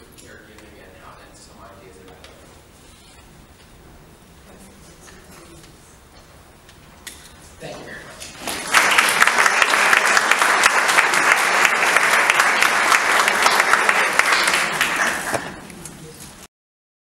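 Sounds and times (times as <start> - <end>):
audience applauding: 8.2 - 15.7.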